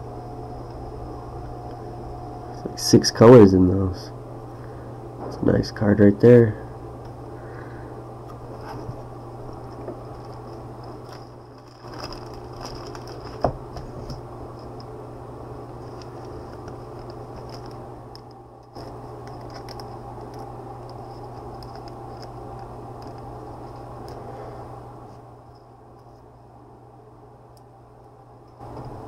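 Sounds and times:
steady low hum: 0:00.0 - 0:29.0
card handled scraping and clicking: 0:15.8 - 0:24.2.

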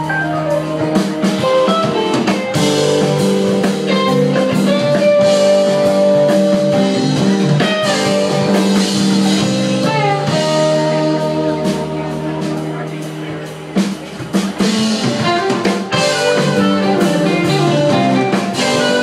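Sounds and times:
rock band playing: 0:00.0 - 0:19.0.

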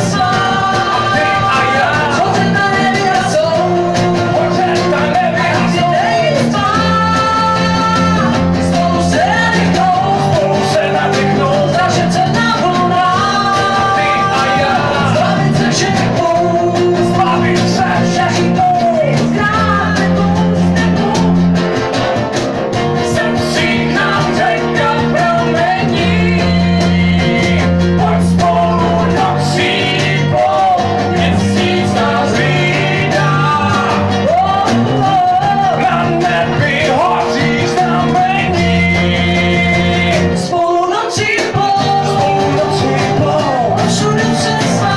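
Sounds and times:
woman singing: 0:00.0 - 0:21.5, 0:23.0 - 0:44.9
man singing: 0:00.0 - 0:21.8, 0:22.9 - 0:44.9
acoustic guitar playing: 0:00.0 - 0:44.9.

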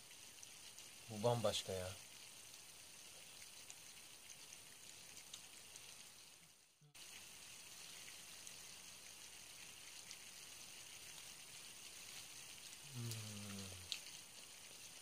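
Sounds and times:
faint steady hiss: 0:00.0 - 0:15.0
small ticks: 0:02.1 - 0:06.1, 0:12.1 - 0:14.9
man humming while eating: 0:12.9 - 0:13.9.

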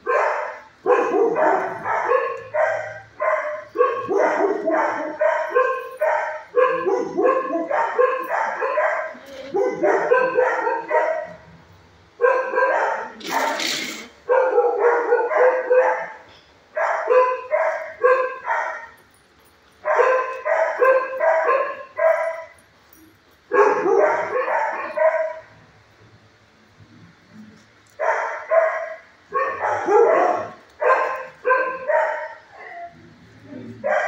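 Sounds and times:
dogs barking: 0:00.0 - 0:11.5, 0:12.1 - 0:19.0, 0:19.8 - 0:22.6, 0:23.5 - 0:25.6, 0:27.9 - 0:33.0, 0:33.7 - 0:34.0.

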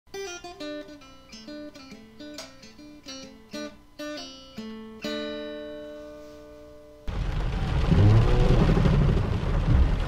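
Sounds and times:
acoustic guitar picking: 0:00.1 - 0:07.0.

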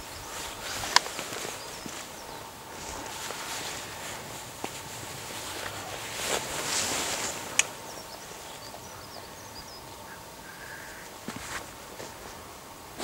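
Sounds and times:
faint high bird chirps: 0:07.8 - 0:11.1.

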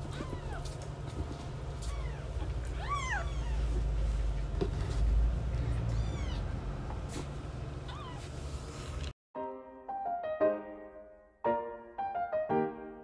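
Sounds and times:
kittens mewing: 0:00.0 - 0:00.8, 0:01.8 - 0:04.0, 0:05.6 - 0:06.6, 0:07.8 - 0:08.4.

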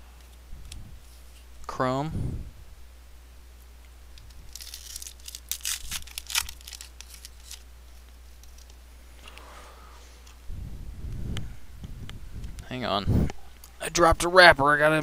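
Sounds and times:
foil wrapper tearing and crinkling: 0:04.2 - 0:08.8.

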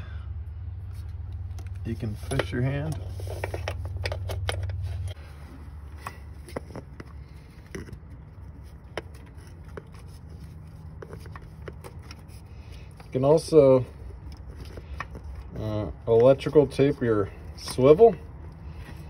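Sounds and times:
low hum: 0:00.0 - 0:13.1.

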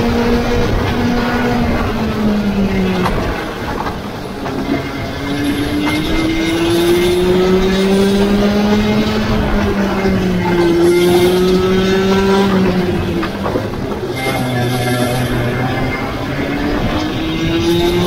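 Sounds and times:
kart engine racing: 0:00.0 - 0:18.0
second steady engine: 0:00.0 - 0:18.0.

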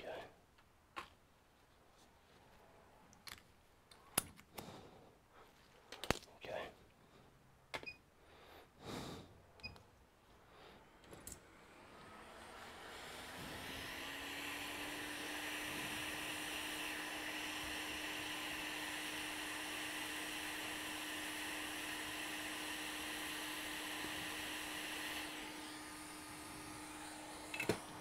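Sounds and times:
hot air blower hissing: 0:10.8 - 0:28.0.

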